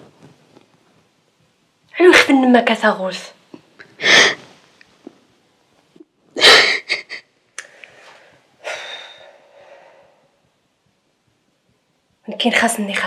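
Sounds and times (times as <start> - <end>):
woman sobbing: 6.4 - 7.4
catches of breath: 7.6 - 10.4.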